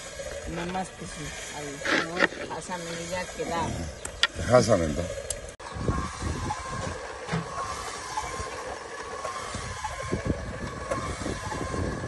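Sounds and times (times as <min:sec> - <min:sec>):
rotisserie motor whine: 0:00.0 - 0:12.0.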